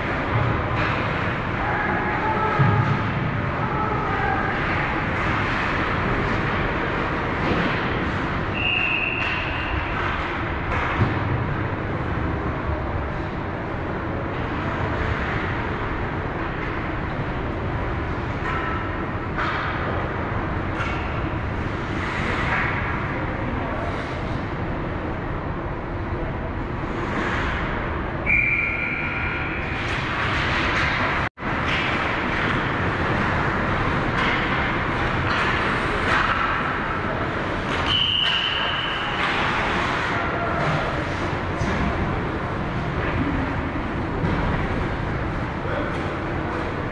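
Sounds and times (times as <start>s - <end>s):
arena ambience: 0.0s - 46.9s
referee whistle blasts: 28.3s - 29.2s.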